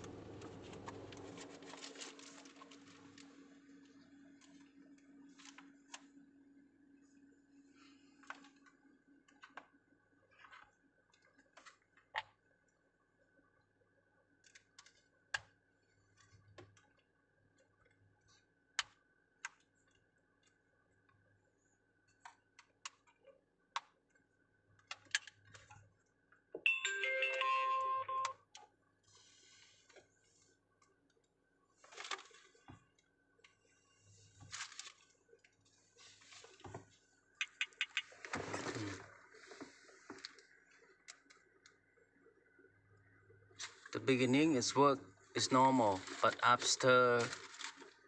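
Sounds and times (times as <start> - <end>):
electronic tune: 26.7 - 28.3.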